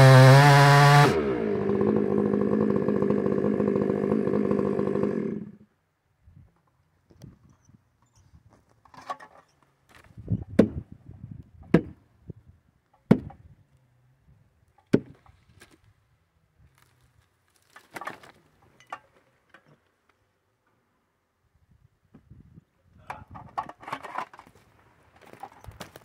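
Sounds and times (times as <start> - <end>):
axe striking tree: 13.1 - 13.3.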